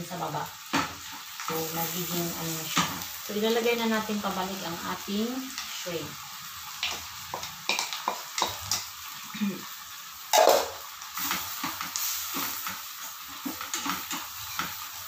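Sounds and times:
vegetables sizzling: 0.0 - 15.0
turner scraping and tapping pan: 6.8 - 9.0, 13.4 - 14.9.

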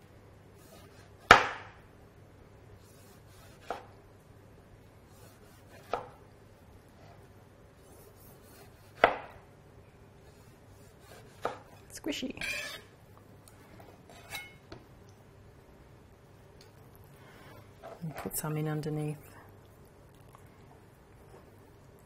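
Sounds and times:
knife slicing tomatoes: 5.1 - 6.2, 10.2 - 12.9.

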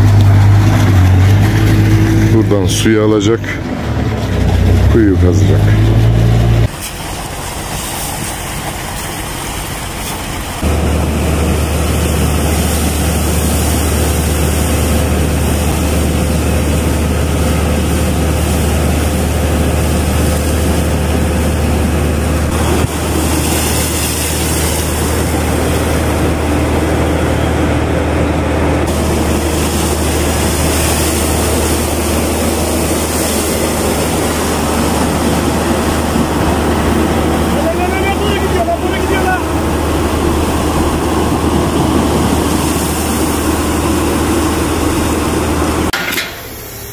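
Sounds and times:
heavy engine hum: 0.0 - 46.9
rushing spray of mud and water: 4.5 - 27.8, 28.7 - 46.9.

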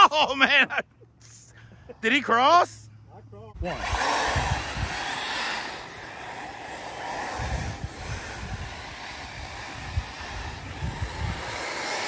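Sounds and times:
distant rc cars racing: 3.6 - 12.0
wind buffeting microphone: 3.6 - 12.0.

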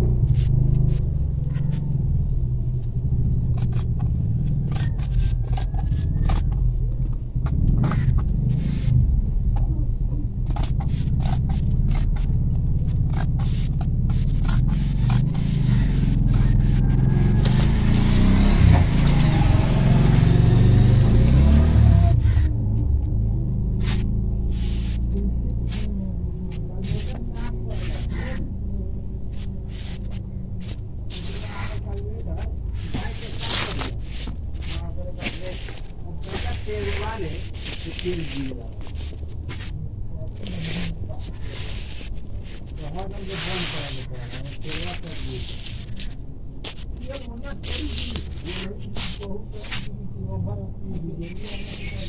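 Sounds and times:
low rumble: 0.0 - 44.8
shears snipping fabric: 10.5 - 19.2, 40.4 - 49.9.

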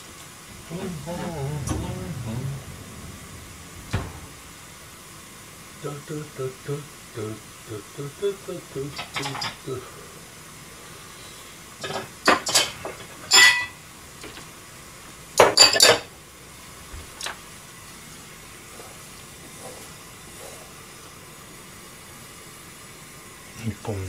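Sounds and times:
faint hiss of noodles boiling: 0.0 - 24.0
metal utensils clinking on pans: 11.8 - 13.8, 15.4 - 16.0.

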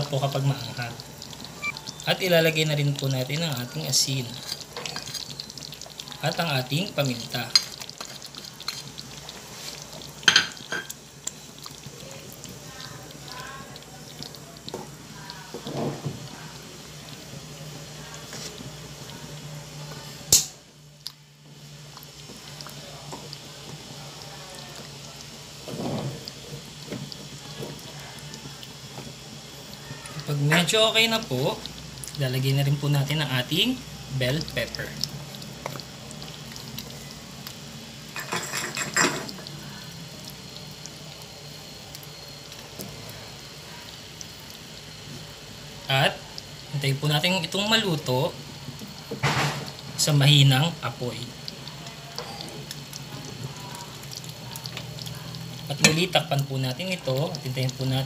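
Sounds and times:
stew bubbling: 0.0 - 58.0
wooden spatula stirring thick stew: 18.2 - 19.1.

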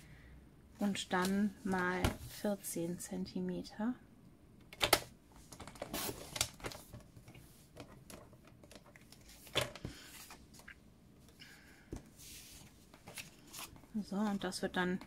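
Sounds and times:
paper rustling: 12.2 - 14.4.

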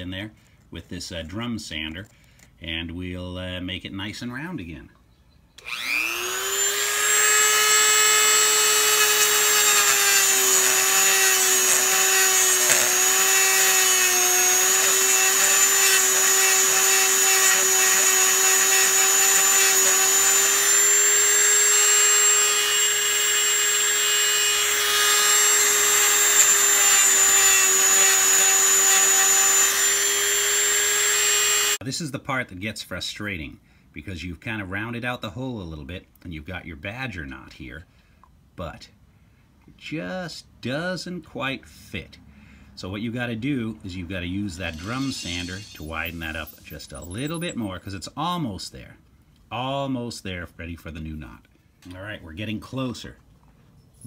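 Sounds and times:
rotary tool grinding plastic: 5.6 - 31.8, 44.6 - 47.6.

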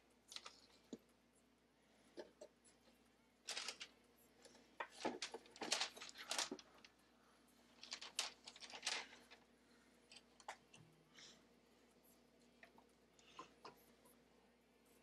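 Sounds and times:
small objects clicking and rustling: 3.5 - 3.9, 4.8 - 6.9, 7.8 - 9.3.

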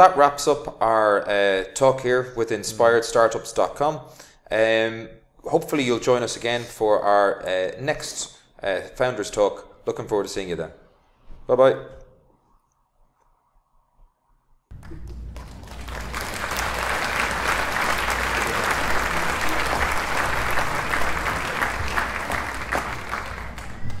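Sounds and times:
applause: 14.7 - 24.0.

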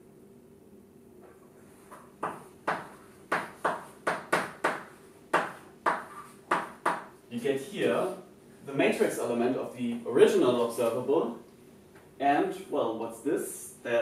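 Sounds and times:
faint room hum: 0.0 - 14.0
chalk strokes and taps: 1.4 - 7.1.

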